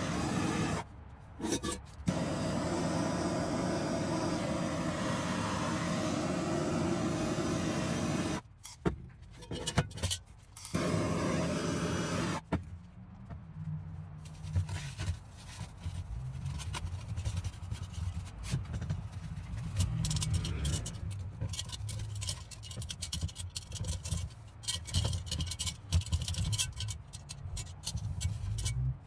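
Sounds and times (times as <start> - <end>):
torch hissing: 0.0 - 0.9, 2.1 - 8.4, 10.8 - 12.4
rag rubbing inside iron pot: 1.4 - 1.8.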